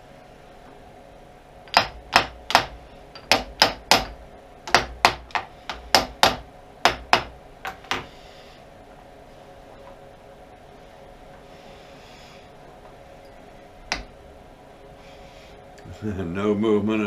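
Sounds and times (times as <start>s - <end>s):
hammer tapping metal: 1.7s - 8.1s.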